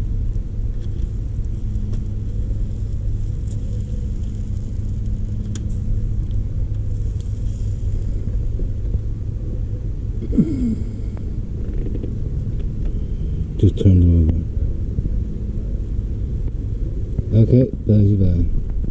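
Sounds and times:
low rumble: 0:00.0 - 0:18.9.

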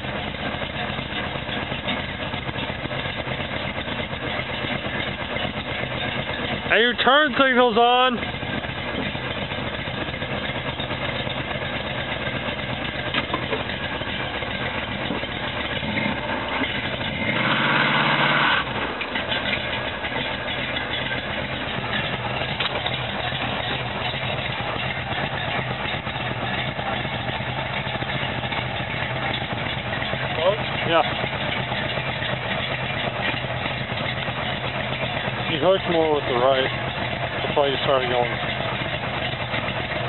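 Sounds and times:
car engine idling: 0:00.0 - 0:40.0
tires spinning: 0:00.0 - 0:40.0
engine revving: 0:15.1 - 0:19.6.

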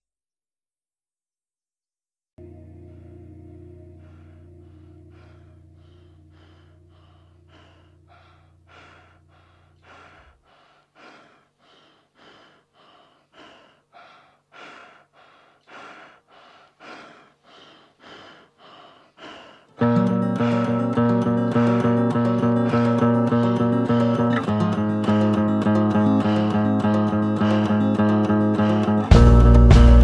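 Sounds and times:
guitar music: 0:02.4 - 0:08.6, 0:19.8 - 0:30.0
low drone: 0:02.4 - 0:10.5
rhythmic breathing: 0:02.5 - 0:30.0.

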